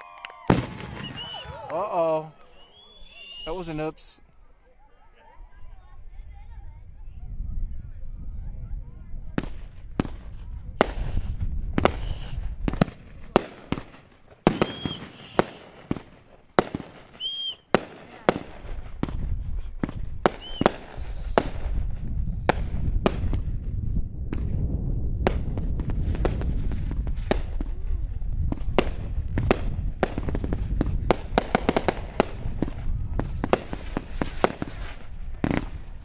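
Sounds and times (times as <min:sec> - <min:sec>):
fireworks bangs and crackles: 0:00.2 - 0:01.7, 0:09.1 - 0:36.0
firework whistles: 0:00.5 - 0:01.6, 0:02.4 - 0:03.7, 0:10.8 - 0:12.6, 0:14.4 - 0:15.8, 0:17.1 - 0:17.7, 0:19.5 - 0:21.6.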